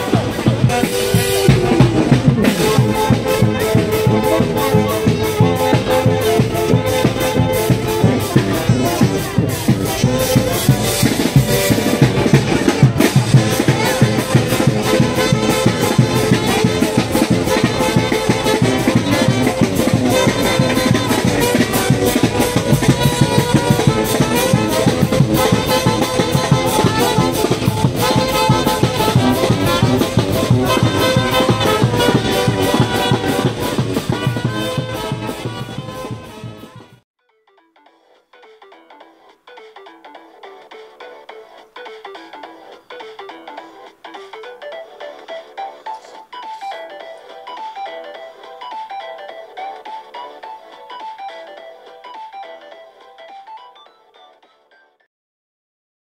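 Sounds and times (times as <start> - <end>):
brass band music with drums: 0.0 - 37.0.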